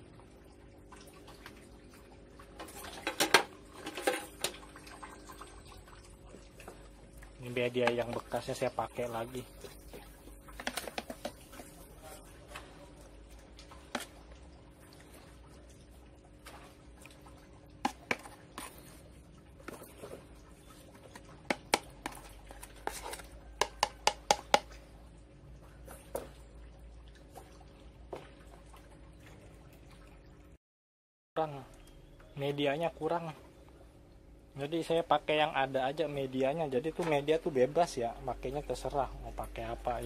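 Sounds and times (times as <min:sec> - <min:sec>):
plastic ladle clicks and taps: 0:23.6 - 0:24.7.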